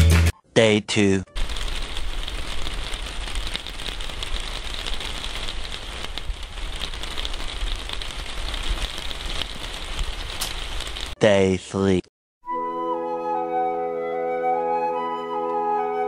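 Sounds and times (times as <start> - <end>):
steady rain falling: 1.3 - 11.2.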